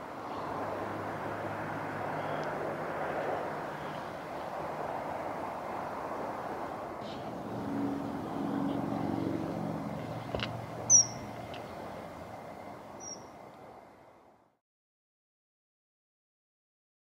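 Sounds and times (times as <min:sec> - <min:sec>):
distant engines hum: 0:00.0 - 0:14.6
kingfisher calls: 0:10.9 - 0:11.3, 0:13.0 - 0:13.3.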